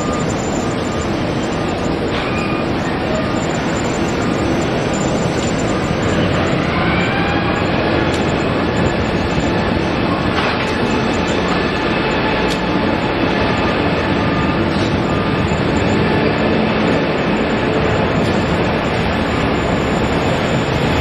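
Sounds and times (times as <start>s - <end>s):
jet engines roaring with whine: 0.0s - 21.0s.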